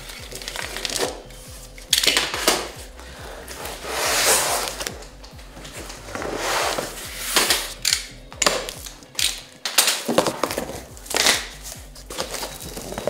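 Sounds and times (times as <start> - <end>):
cardboard box scraping: 3.2 - 5.0, 5.6 - 7.8.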